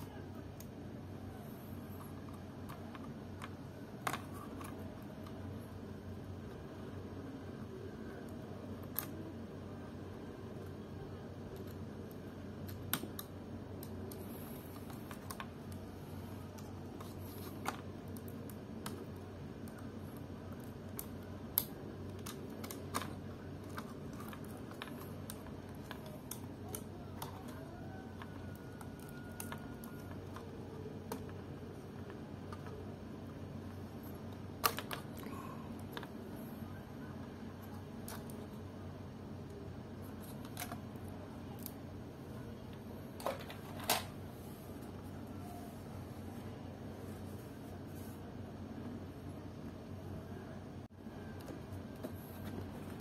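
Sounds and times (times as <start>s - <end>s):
steady low hum: 0.0s - 53.0s
laptop parts clicking and tapping: 16.5s - 32.9s.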